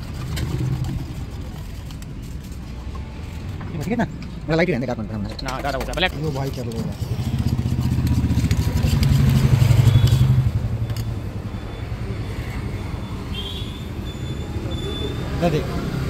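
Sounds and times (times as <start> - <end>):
motorcycle engine idling and revving: 0.0 - 2.5, 6.5 - 13.2, 13.8 - 16.0.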